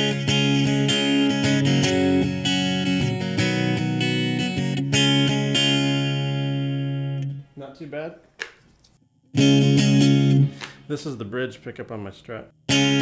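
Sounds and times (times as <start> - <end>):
guitar strumming chords: 0.0 - 7.5, 9.3 - 10.9, 12.7 - 13.0.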